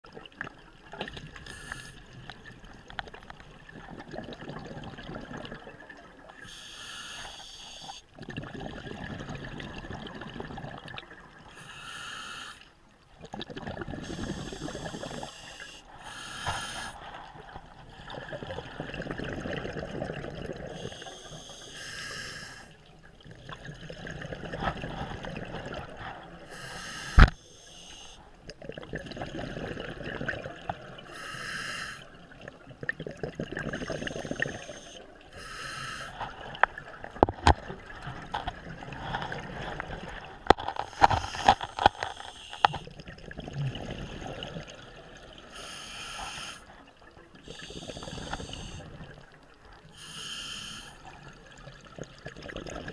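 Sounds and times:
regulator hiss on inhalation: 1.4 - 2.0, 6.4 - 8.0, 11.5 - 12.7, 14.0 - 17.0, 20.8 - 22.8, 26.5 - 28.2, 31.1 - 32.1, 33.7 - 36.2, 40.8 - 42.8, 45.5 - 46.7, 47.5 - 48.8, 49.9 - 51.0
exhalation bubbling: 32.8 - 34.7, 36.1 - 44.9.

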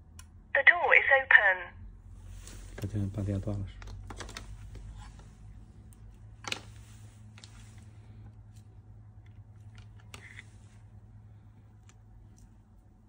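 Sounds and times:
steady low hum: 0.0 - 13.0
multimeter probes and wires clicking: 11.7 - 12.8.

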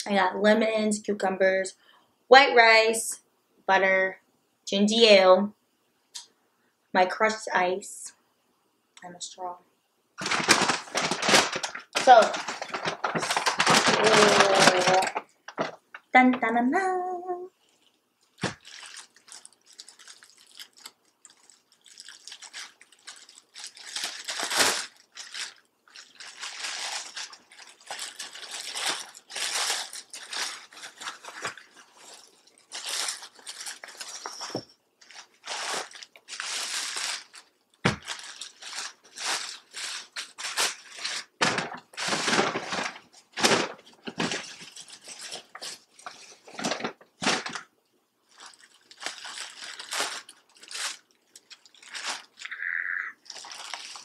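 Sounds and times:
plastic bag crinkling: 10.2 - 16.6, 17.5 - 54.0.

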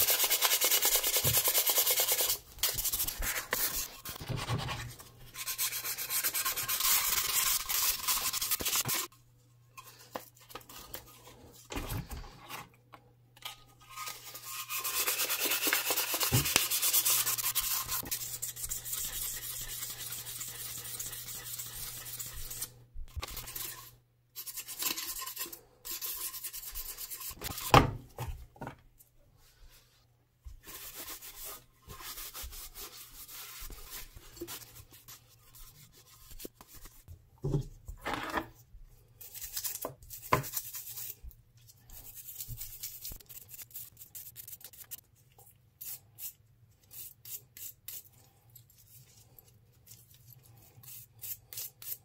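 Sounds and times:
sandpaper rubbing on metal can: 0.0 - 4.2, 5.3 - 9.1, 14.0 - 27.7.

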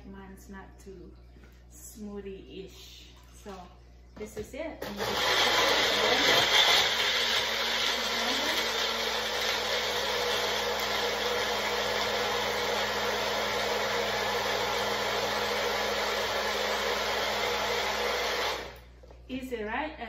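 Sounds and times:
blender crushing ice: 4.8 - 18.8.

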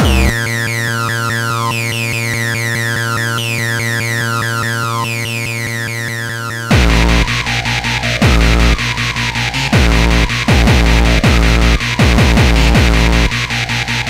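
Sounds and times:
repeating falling synth figure: 0.0 - 0.4
held synth chord: 0.0 - 1.9.

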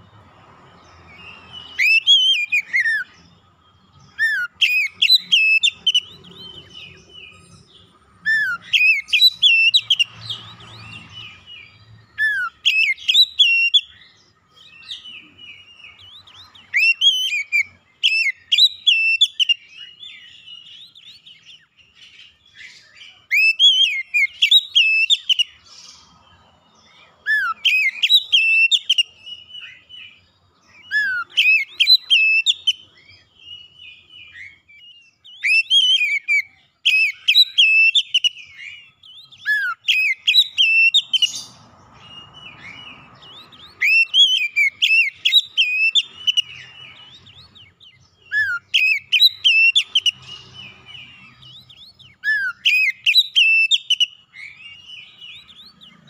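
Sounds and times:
soft bird twittering: 0.0 - 56.0
bird singing whistled phrases: 1.2 - 3.2, 3.8 - 26.0, 27.2 - 56.0.

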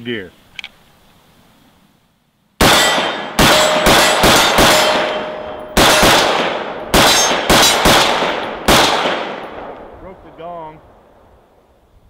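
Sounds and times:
rifle shots: 2.6 - 10.0
steel gong target ringing: 2.7 - 7.8.

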